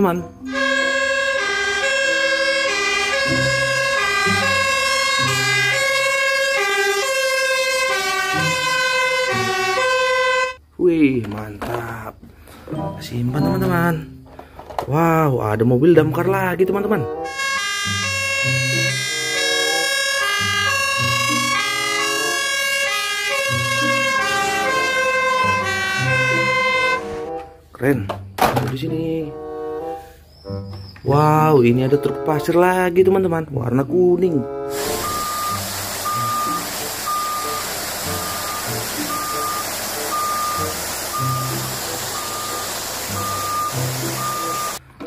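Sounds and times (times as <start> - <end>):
fire engine siren: 0.0 - 10.6, 17.2 - 27.6, 34.7 - 44.8.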